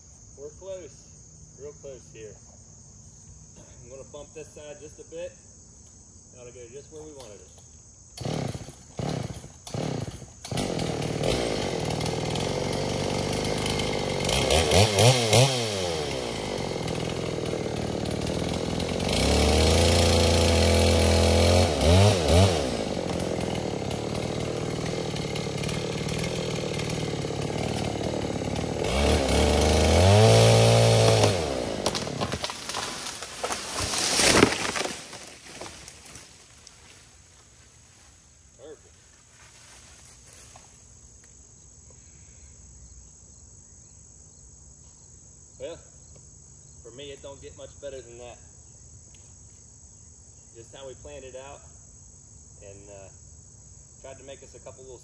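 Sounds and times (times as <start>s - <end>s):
chainsaw running and revving: 8.2s - 37.0s
tree crashing down: 9.8s - 37.7s.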